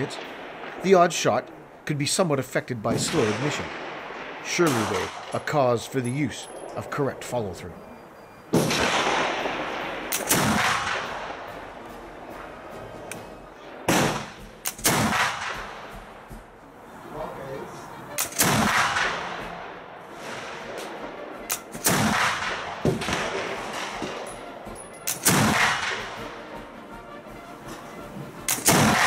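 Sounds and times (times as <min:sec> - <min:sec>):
rifle shots with rolling echo: 0:00.0 - 0:16.8, 0:18.1 - 0:29.0
faint sharp cracks: 0:18.2 - 0:24.4.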